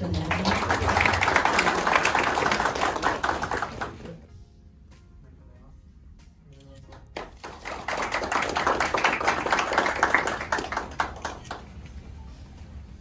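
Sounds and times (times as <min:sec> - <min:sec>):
audience applauding: 0:00.0 - 0:04.2, 0:07.0 - 0:11.8.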